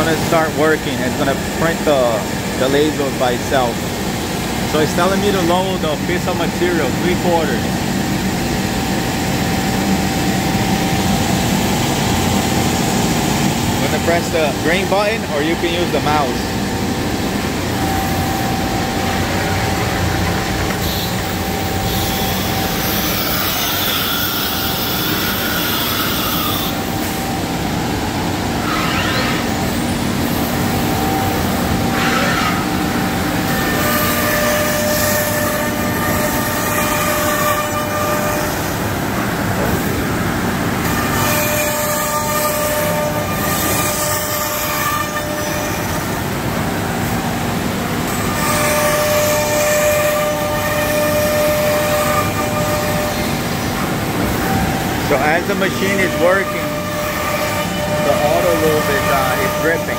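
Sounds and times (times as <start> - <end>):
router machine drone and whine: 0.0 - 59.9.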